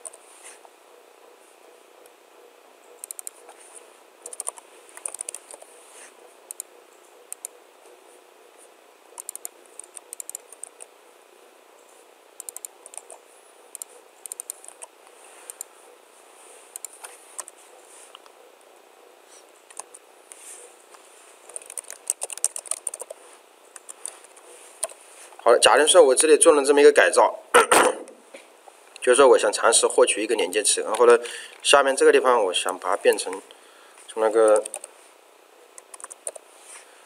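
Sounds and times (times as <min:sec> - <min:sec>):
computer keyboard typing: 0:02.9 - 0:03.5, 0:04.2 - 0:05.7, 0:06.5 - 0:06.7, 0:07.3 - 0:07.6, 0:09.2 - 0:10.9, 0:12.4 - 0:14.9, 0:16.7 - 0:17.6, 0:19.7 - 0:20.0, 0:21.5 - 0:25.0, 0:34.4 - 0:34.9, 0:35.8 - 0:36.4.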